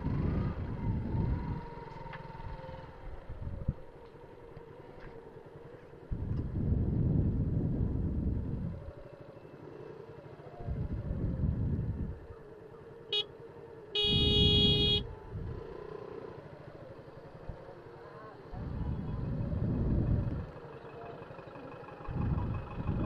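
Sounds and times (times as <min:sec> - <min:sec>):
motorcycle running slowly: 0:00.0 - 0:23.0
traffic: 0:00.0 - 0:23.0
vehicle horn honking: 0:14.0 - 0:15.1.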